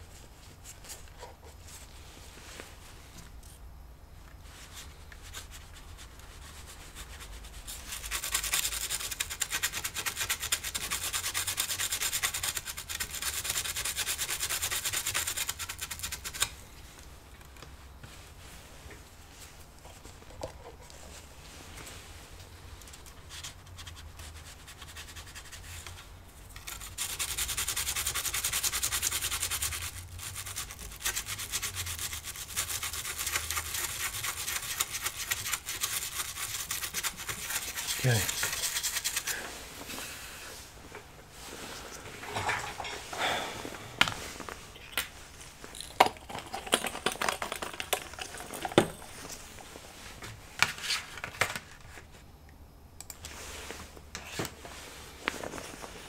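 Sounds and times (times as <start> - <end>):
brush scrubbing circuit board: 7.8 - 16.3, 26.7 - 39.3.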